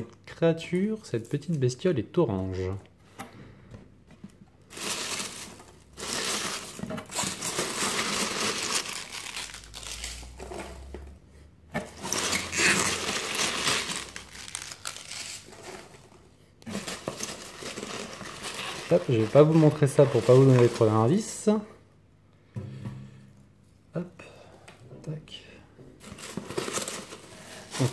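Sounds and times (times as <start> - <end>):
foam packing peanuts rustling: 4.6 - 10.9, 11.9 - 21.6, 26.0 - 27.9.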